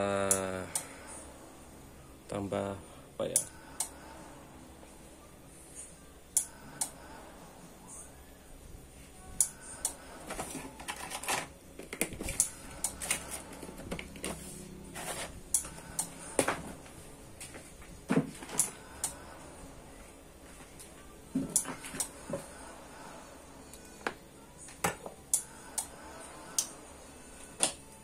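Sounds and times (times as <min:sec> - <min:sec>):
small parts and tools clattering: 0:10.3 - 0:14.4.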